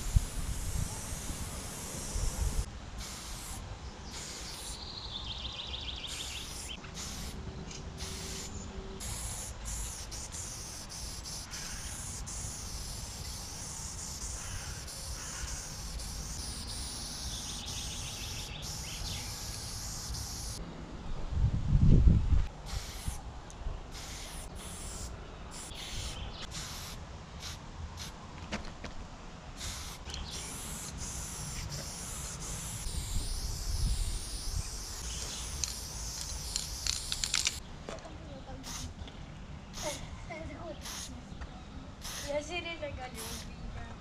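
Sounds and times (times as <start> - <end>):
spray paint can hissing: 0.0 - 4.8, 5.9 - 7.4, 8.0 - 20.6, 22.6 - 23.2, 23.9 - 28.2, 29.6 - 37.6, 38.6 - 39.0, 39.7 - 40.0, 40.7 - 41.1, 42.0 - 42.4, 43.2 - 43.5.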